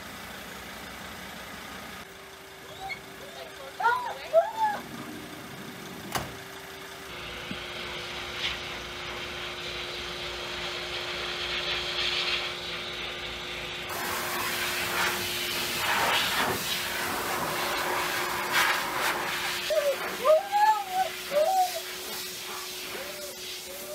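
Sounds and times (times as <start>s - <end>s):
steady machine hum: 0.0s - 23.9s
hiss: 7.2s - 23.9s.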